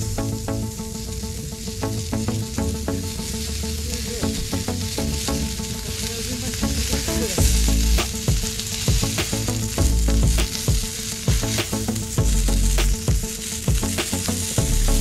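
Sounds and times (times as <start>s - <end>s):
fat popping and crackling: 1.4s - 15.0s
meat sizzling on griddle: 3.2s - 15.0s.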